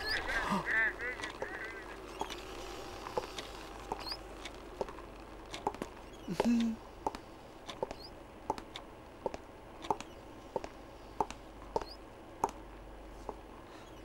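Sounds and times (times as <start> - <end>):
faint high squeaks: 2.1 - 4.3, 7.8 - 8.2
hard shoes on stone floor: 7.8 - 12.6.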